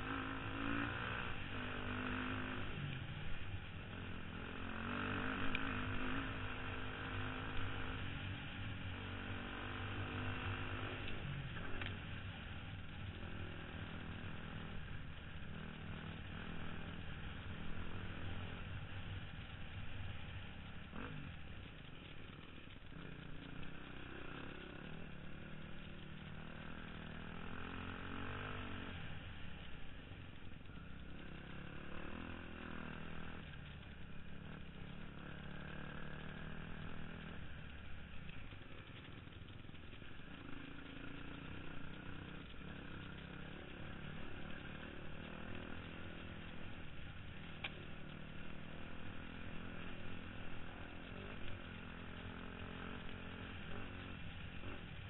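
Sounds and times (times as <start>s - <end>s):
dirt bike engine revving: 0.0s - 2.8s, 3.9s - 8.2s, 30.7s - 37.5s, 40.2s - 55.0s.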